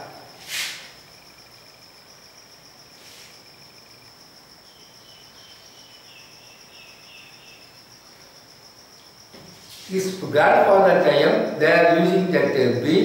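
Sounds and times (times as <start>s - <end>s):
high-pitched insect trill: 0.0s - 13.0s
short lower insect calls: 0.0s - 13.0s.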